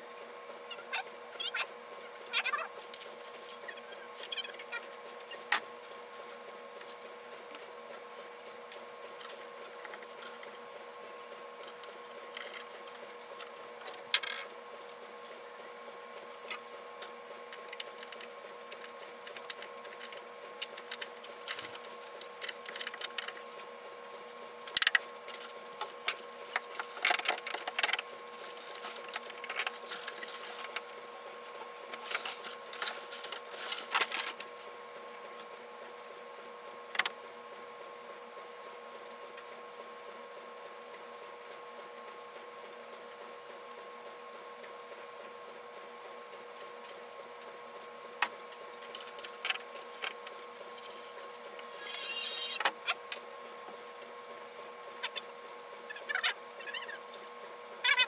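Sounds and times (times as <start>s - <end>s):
electrical hum: 0.0s - 58.0s.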